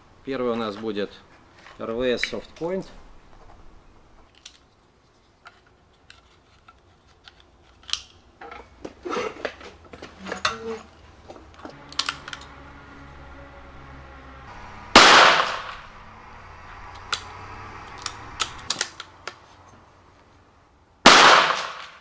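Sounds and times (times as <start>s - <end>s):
rifle being handled clicks: 5.5s - 8.2s, 11.9s - 12.5s, 17.9s - 19.4s.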